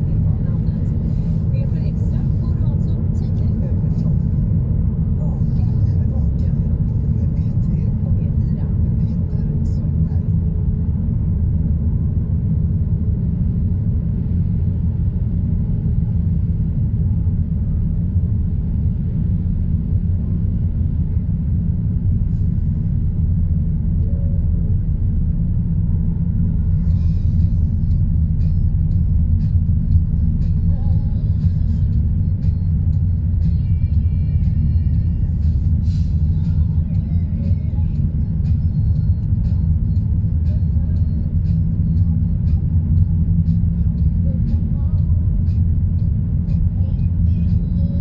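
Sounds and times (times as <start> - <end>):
car interior engine and road rumble: 0.0 - 48.0.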